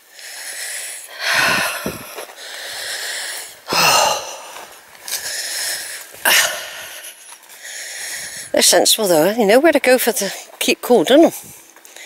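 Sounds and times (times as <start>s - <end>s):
person breathing heavily: 0.0s - 8.6s.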